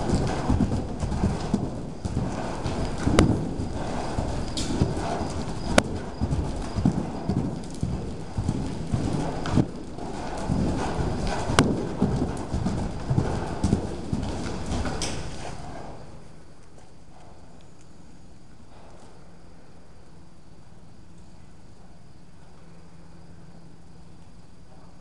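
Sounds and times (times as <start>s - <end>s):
horse hoofbeats on soft dirt: 0.0s - 17.9s, 18.6s - 19.2s.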